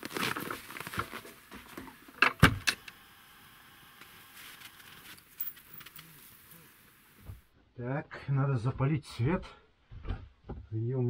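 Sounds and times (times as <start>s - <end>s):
rustling and scuffing: 0.0s - 2.1s, 4.0s - 7.5s
wooden door banging shut: 2.2s - 2.7s.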